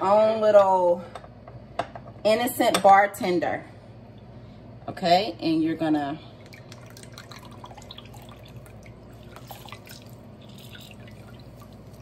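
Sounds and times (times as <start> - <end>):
juice dripping into bowl: 6.4 - 12.0.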